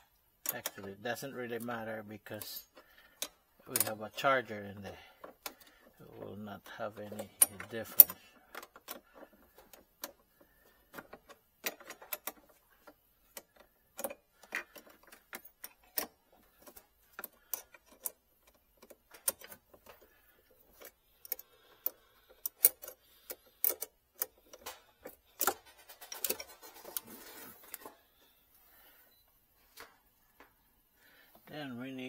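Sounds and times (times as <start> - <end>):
hand tool clicking on metal: 6.8 - 10.2, 11.0 - 27.0.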